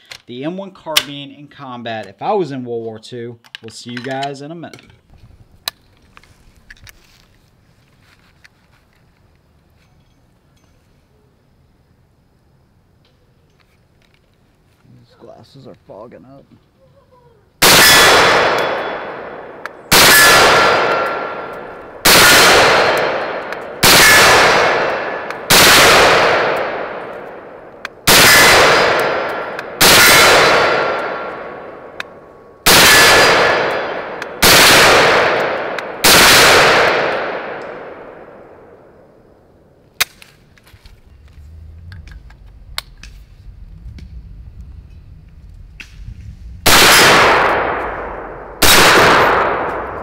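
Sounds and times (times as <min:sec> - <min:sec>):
rifle shots ringing: 0:17.6 - 0:39.0, 0:46.6 - 0:50.0.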